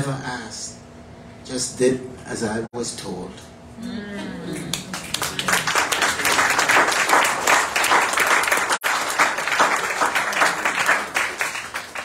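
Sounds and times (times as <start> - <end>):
audience applauding: 4.7 - 12.0.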